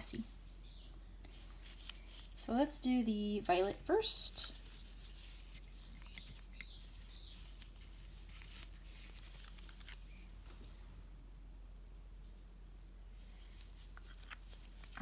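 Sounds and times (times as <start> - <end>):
low steady hum: 0.0 - 15.0
soft rustles: 0.9 - 11.0, 13.1 - 15.0.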